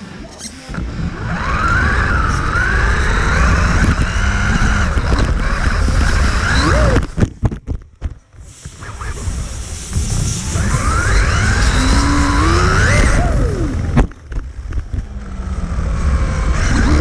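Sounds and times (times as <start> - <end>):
rumble of tyres and chassis: 0.0 - 17.0
electric motor whining: 0.6 - 7.2, 9.9 - 14.2, 15.1 - 17.0.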